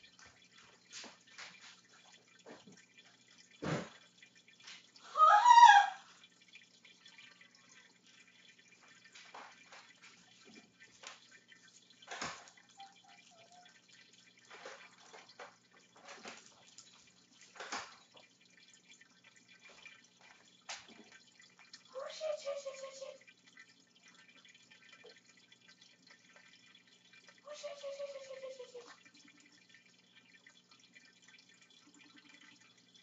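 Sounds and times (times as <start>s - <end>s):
high-pitched cry: 5.0s - 6.1s.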